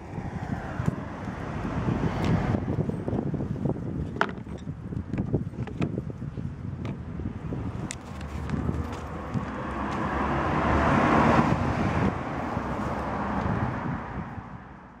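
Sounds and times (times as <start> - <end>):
vehicle passing by: 0.0 - 3.4, 7.4 - 14.9.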